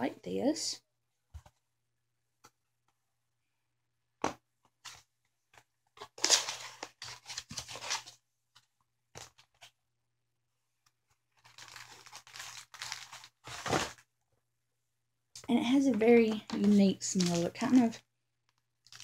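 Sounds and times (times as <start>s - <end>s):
paper rustling: 4.6s - 9.8s, 11.1s - 14.1s, 16.1s - 19.0s
paper tearing and crinkling: 6.0s - 8.2s, 11.4s - 14.0s.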